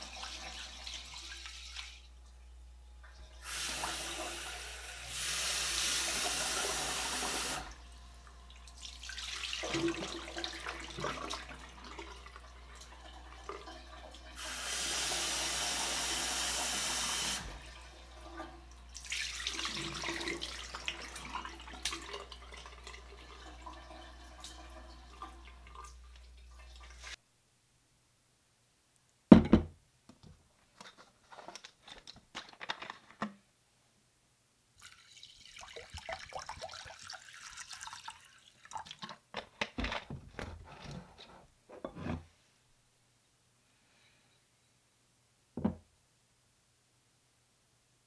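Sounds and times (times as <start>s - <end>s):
tap water running into metal pot: 3.4s - 27.2s, 34.8s - 39.1s.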